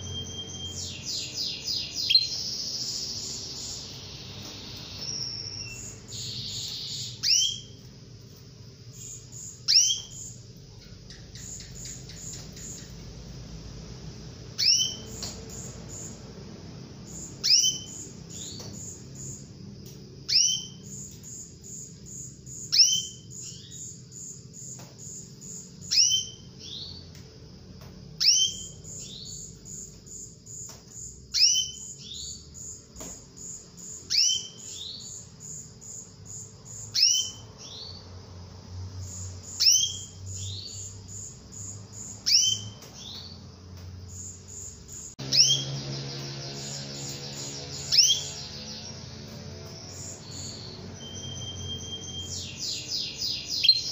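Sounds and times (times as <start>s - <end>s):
canary upward-sweeping call: 0.0s - 7.8s, 14.6s - 15.2s, 17.4s - 18.6s, 45.2s - 49.4s, 50.0s - 53.9s.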